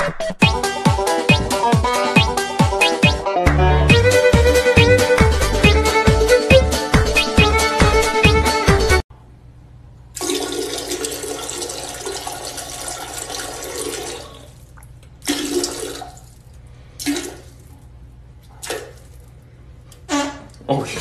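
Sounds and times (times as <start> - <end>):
toilet flushing: 10.2 - 16.4, 17.0 - 17.6.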